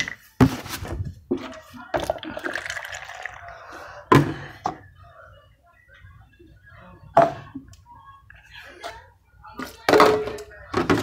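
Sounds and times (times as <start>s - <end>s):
milk pouring into a cup: 2.0s - 3.6s.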